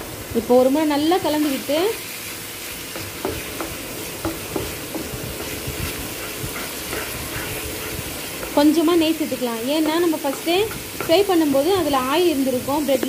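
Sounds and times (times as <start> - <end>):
oil sizzling: 0.0 - 13.0
spatula scraping a pan: 1.3 - 11.8.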